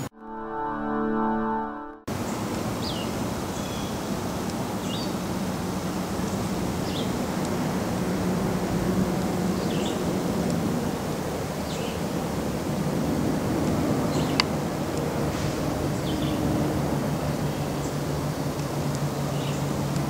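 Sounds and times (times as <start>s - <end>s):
steady outdoor rumble: 2.1s - 20.0s
small bird chirping: 2.3s - 4.1s.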